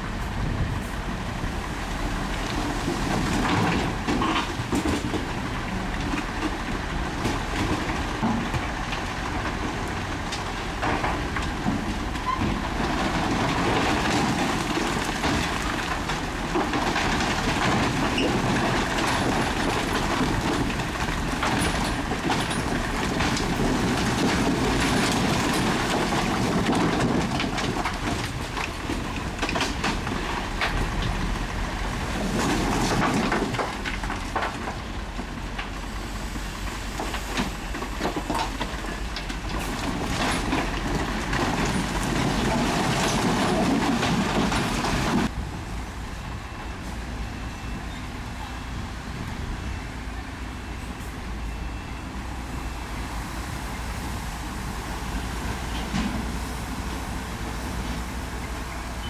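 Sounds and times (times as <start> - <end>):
steel tracks clattering: 2.2 - 45.4.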